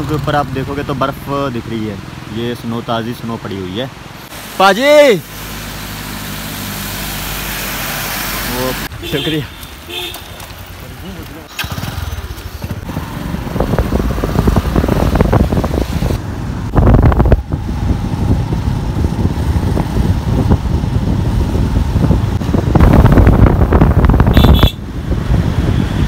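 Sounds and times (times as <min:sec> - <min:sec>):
motorcycle engine running: 0:11.1 - 0:15.9
wind buffeting microphone: 0:12.5 - 0:26.0.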